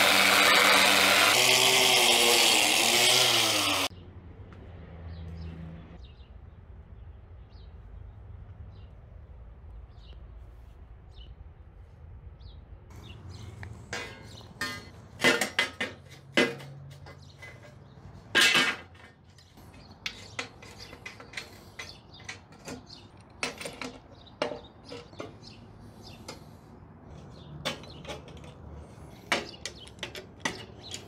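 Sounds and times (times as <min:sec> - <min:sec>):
metal rails clanking: 0:13.3 - 0:25.6, 0:27.1 - 0:31.0.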